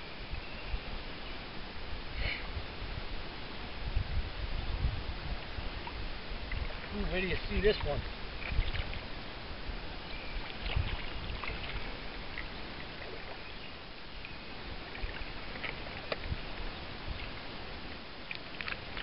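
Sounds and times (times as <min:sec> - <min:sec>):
low unsteady rumble: 0:00.0 - 0:19.0
water lapping and sloshing: 0:05.3 - 0:19.0.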